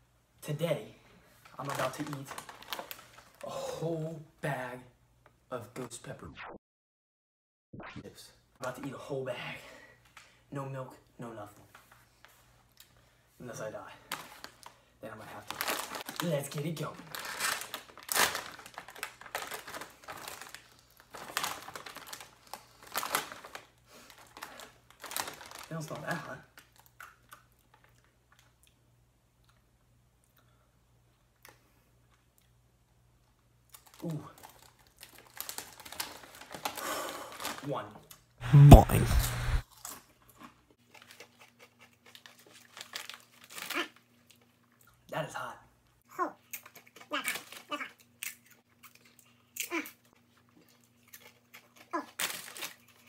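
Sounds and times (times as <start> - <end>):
chip bag crinkling open: 1.4 - 3.5, 14.1 - 28.4, 33.7 - 38.2, 40.8 - 44.8, 46.6 - 49.1, 49.7 - 53.0
chip crunching while chewed: 26.5 - 28.8, 33.6 - 36.8, 39.0 - 45.1, 46.4 - 53.0.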